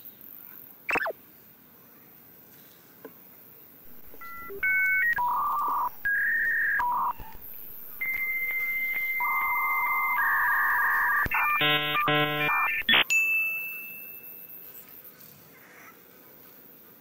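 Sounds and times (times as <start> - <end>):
electronic beep tune: 0.9 - 1.1, 3.9 - 13.1.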